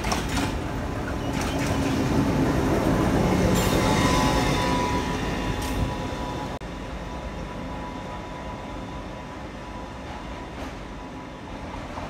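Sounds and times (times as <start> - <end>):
diesel locomotive engine: 0.0 - 12.0.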